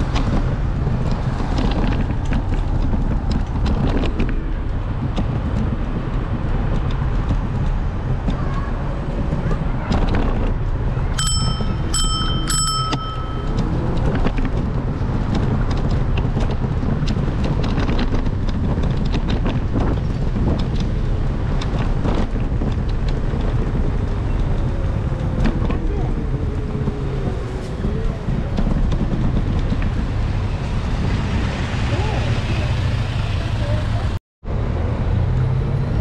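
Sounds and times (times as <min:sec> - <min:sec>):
street and traffic rumble: 0:00.0 - 0:36.0
bicycle bell ringing: 0:11.2 - 0:14.0.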